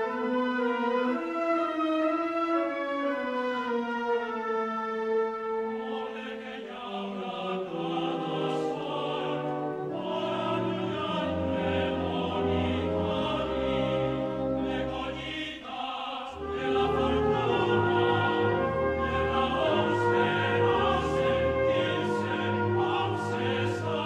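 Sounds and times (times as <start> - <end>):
wind band accompanying: 0.0 - 15.5, 16.4 - 24.0
choir singing: 5.6 - 24.0.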